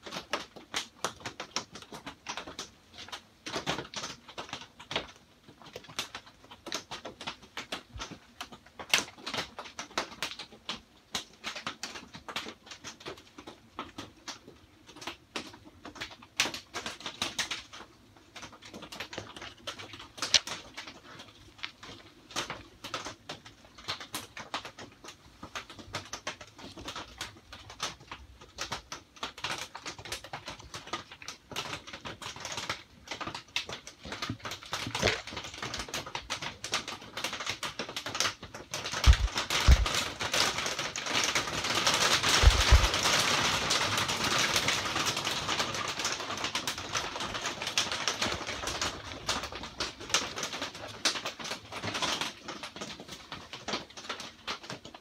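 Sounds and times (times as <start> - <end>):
rain pattering on a roof: 0.0 - 55.0
dull knocks: 39.0 - 39.9.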